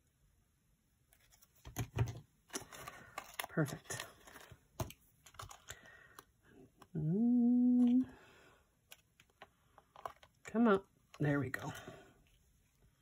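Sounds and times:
woman humming: 6.8s - 8.2s.

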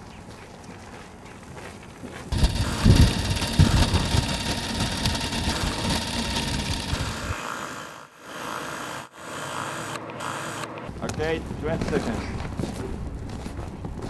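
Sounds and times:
film projector mechanism whirring: 2.3s - 10.8s.

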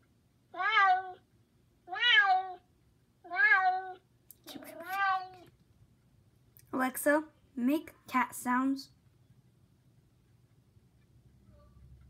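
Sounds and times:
recorded cat meows from speaker: 0.5s - 1.2s.

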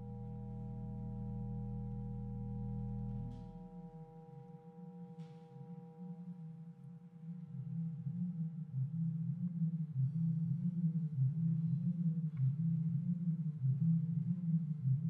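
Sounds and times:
dense low drone: 0.0s - 4.0s
fluttering low tone: 0.0s - 4.1s.

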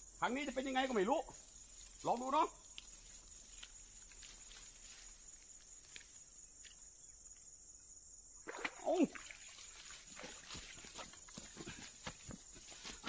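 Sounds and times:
crickets chirring: 0.0s - 13.0s
faint rustles and ticks: 1.3s - 6.8s.

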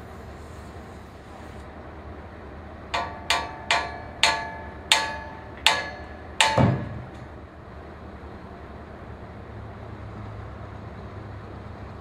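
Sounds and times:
hammer striking steel: 2.9s - 7.4s
dull heavy thud: 6.4s - 7.3s.

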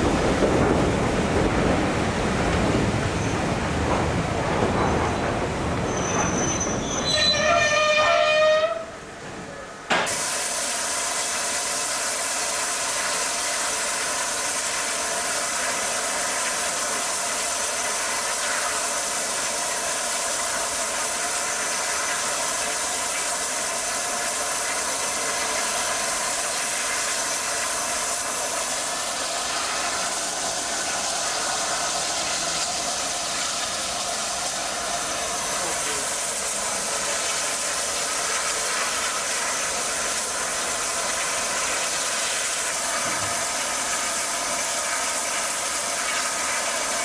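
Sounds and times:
steam locomotive steam hiss: 10.0s - 47.0s.

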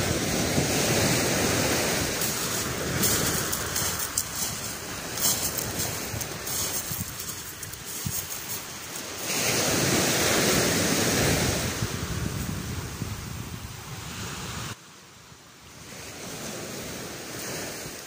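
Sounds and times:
waves washing onto shingle: 0.0s - 12.8s
wind buffeting microphone: 0.0s - 14.8s.

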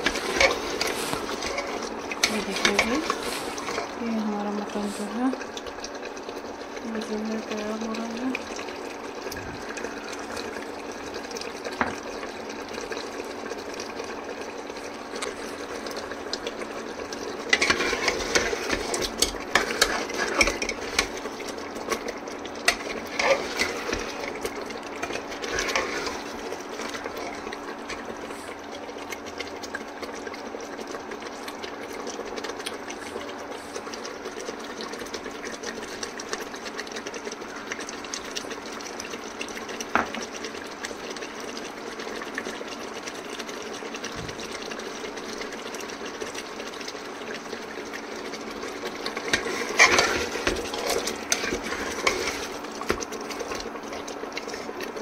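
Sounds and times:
spoon scraping in cooking pot: 17.5s - 21.1s, 22.7s - 24.1s, 25.0s - 26.3s, 49.3s - 52.6s.

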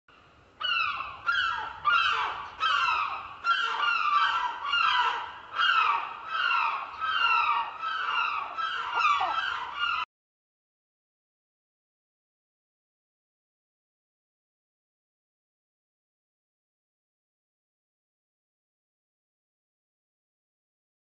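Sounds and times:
bird calling: 0.6s - 10.1s.

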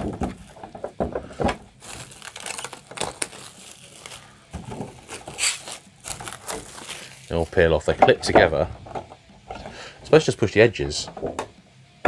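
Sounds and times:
plastic film crinkling: 0.0s - 8.6s.

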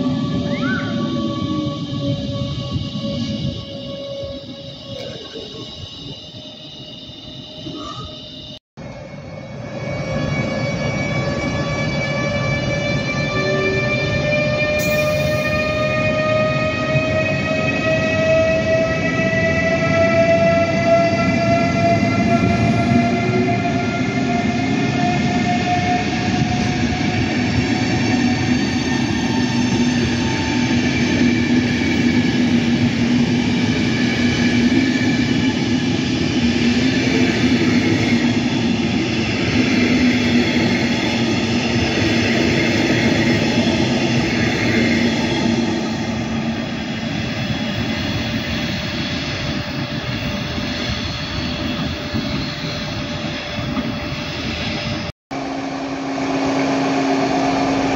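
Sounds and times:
train coaches rolling on rails: 0.0s - 6.6s
electric locomotive whining: 0.0s - 57.9s.

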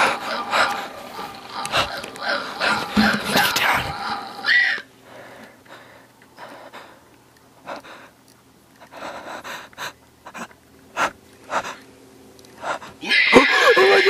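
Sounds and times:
person breathing heavily: 5.0s - 8.2s, 8.8s - 11.8s, 12.6s - 13.0s.

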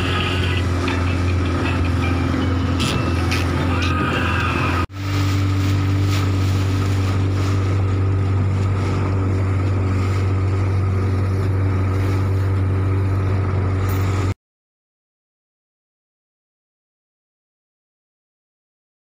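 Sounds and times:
boat motor droning: 0.0s - 14.4s
water against hull: 0.0s - 14.4s.

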